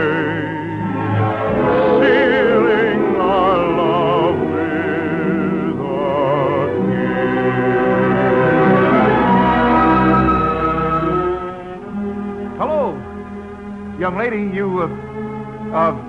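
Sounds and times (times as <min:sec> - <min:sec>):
operatic singing: 0:00.0 - 0:12.8
orchestra: 0:00.0 - 0:16.0.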